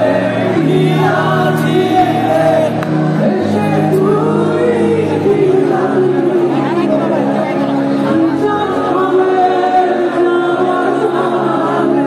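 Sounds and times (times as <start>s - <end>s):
crowd singing along: 0.0s - 12.0s
lead singer singing: 0.0s - 12.0s.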